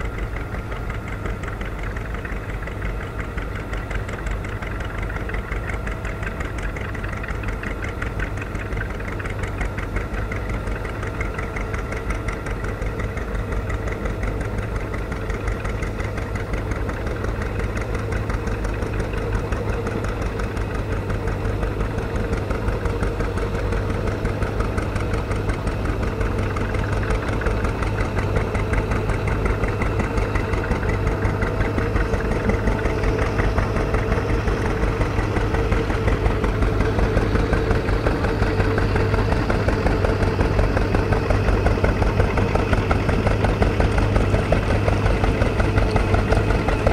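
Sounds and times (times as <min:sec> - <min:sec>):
tractor engines running: 0:00.0 - 0:46.9.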